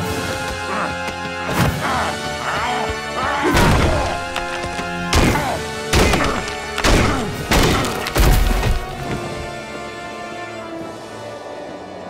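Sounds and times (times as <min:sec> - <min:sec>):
dramatic background music: 0:00.0 - 0:12.0
rock breaking apart: 0:06.4 - 0:09.1.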